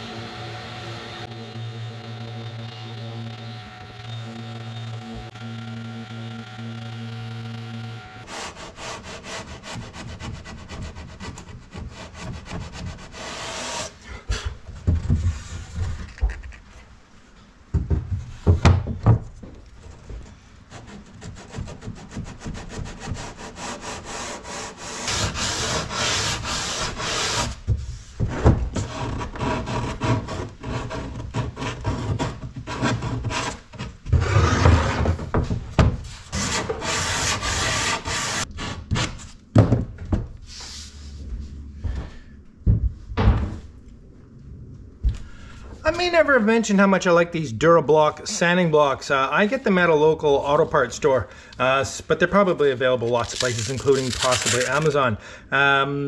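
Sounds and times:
sandpaper rubbing on wood: 20.7 - 27.6, 36.3 - 38.8, 53.2 - 55.0.

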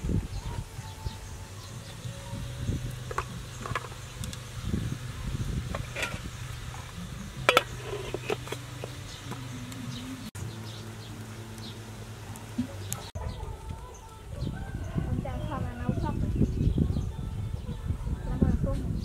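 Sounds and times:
steady low buzz: 0.0 - 13.2
metal pot clanking: 3.0 - 4.2, 5.6 - 9.5.

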